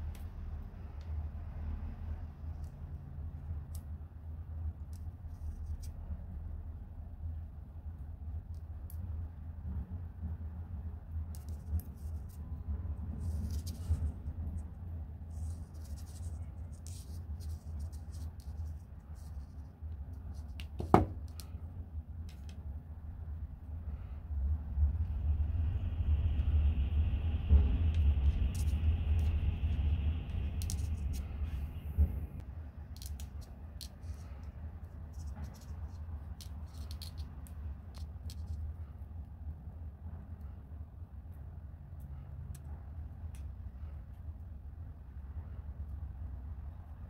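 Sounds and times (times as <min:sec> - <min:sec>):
steady low hum: 0:00.0 - 0:47.0
wire clicks and scrapes: 0:11.3 - 0:21.6, 0:27.6 - 0:31.8, 0:32.9 - 0:38.8.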